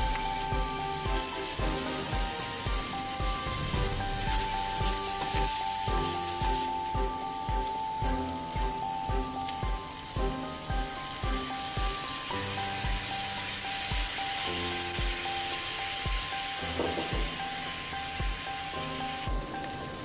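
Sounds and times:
background music with steady beat: 0.0 - 20.0
meat sizzling in a hot pan: 0.0 - 20.0.

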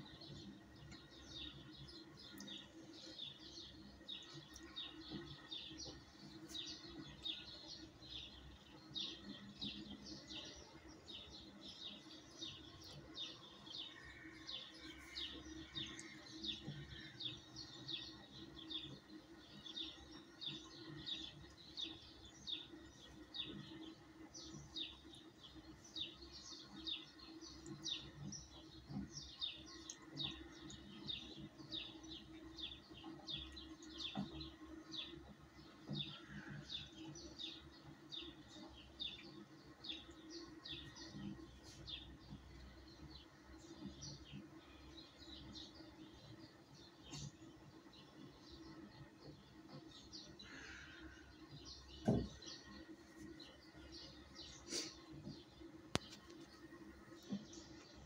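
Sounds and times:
faint steady hum: 0.0 - 58.0
small birds chirping: 0.0 - 58.0.

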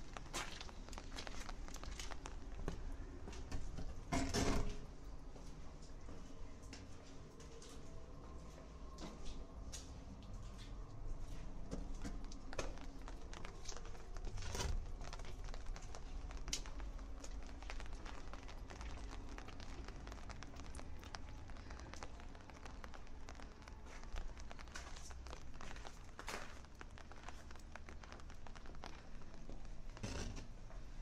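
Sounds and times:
scattered taps and clicks: 0.0 - 4.2, 11.6 - 31.0
low street rumble: 0.0 - 31.0.

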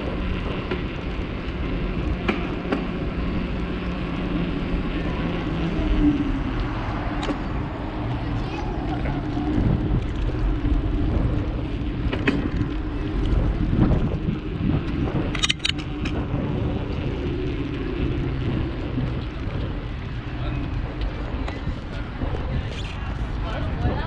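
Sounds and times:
bicycle rolling: 0.0 - 24.0
wind on microphone: 0.0 - 24.0
sharp clicks: 15.3 - 16.2.

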